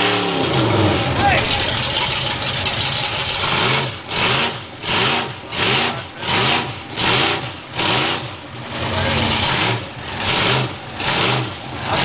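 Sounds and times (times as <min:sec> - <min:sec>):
wheels spinning in mud: 0:00.0 - 0:07.3
engine revving in bursts: 0:00.0 - 0:12.0.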